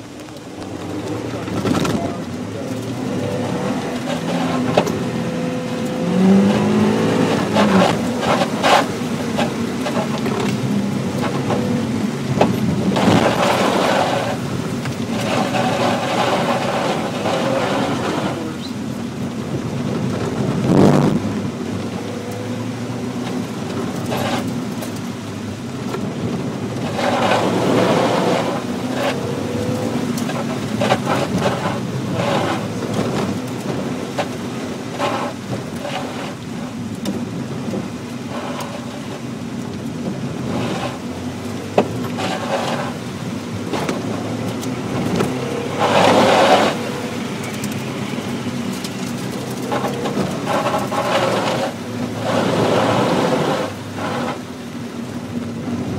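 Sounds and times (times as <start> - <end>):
car engine running: 0.0 - 55.9
tyres on wet ground: 0.0 - 55.9.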